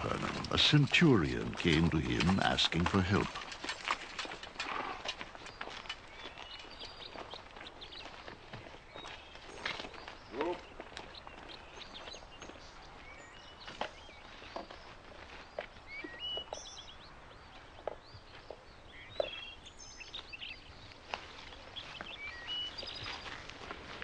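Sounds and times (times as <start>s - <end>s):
birds chirping and whistling: 8.9s - 20.8s, 21.4s - 23.5s
soft footsteps: 20.6s - 24.0s.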